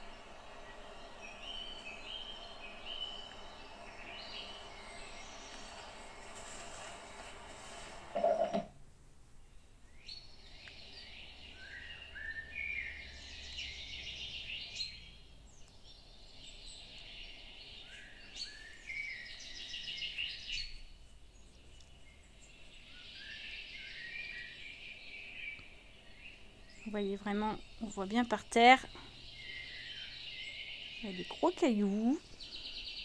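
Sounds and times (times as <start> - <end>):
songbird chirping and trilling: 0.0 - 7.2, 9.5 - 33.0.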